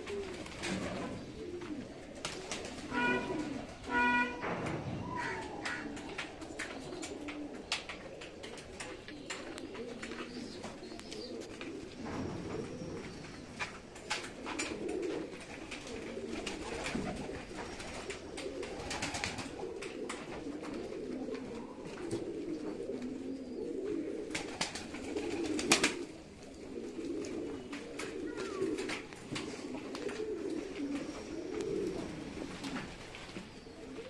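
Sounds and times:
pigeons cooing: 0.0s - 34.0s.

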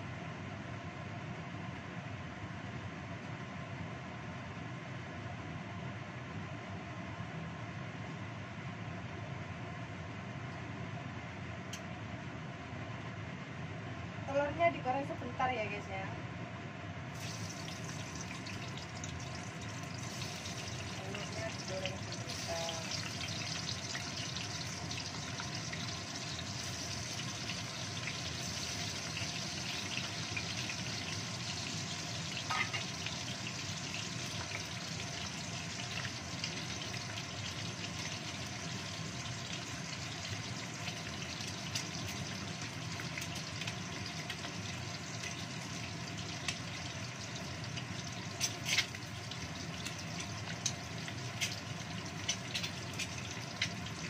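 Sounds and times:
kitchen extractor fan hum: 0.0s - 54.0s
eggs sizzling in oil: 17.1s - 54.0s.

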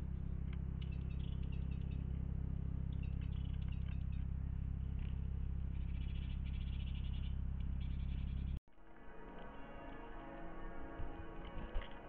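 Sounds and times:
songbirds chirping: 0.0s - 8.6s
steady low hum: 0.0s - 12.0s.

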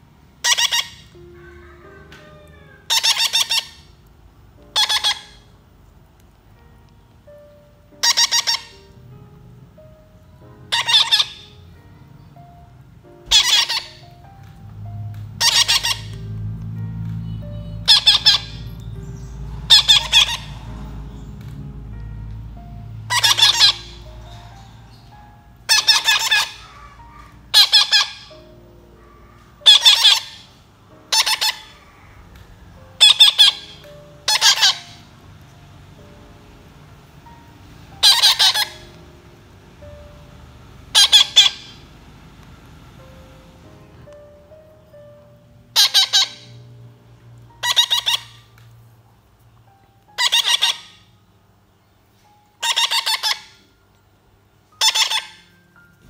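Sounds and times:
baby parakeets squawking: 0.4s - 4.0s, 4.7s - 5.5s, 8.0s - 9.0s, 10.7s - 11.6s, 13.3s - 35.1s, 37.9s - 39.0s, 40.8s - 41.9s, 45.8s - 46.6s, 47.5s - 48.6s, 50.1s - 51.1s, 52.6s - 53.6s, 54.8s - 55.5s.

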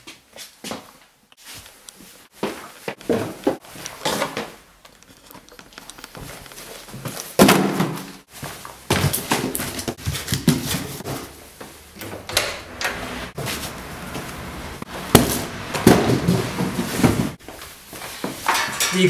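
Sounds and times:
knocks and rustling of box: 6.2s - 8.2s, 8.9s - 11.4s, 15.0s - 17.5s.

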